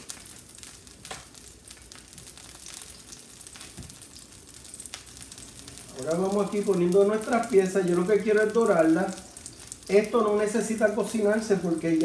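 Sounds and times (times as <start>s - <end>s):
tofu sizzling in hot oil: 0.0s - 12.0s.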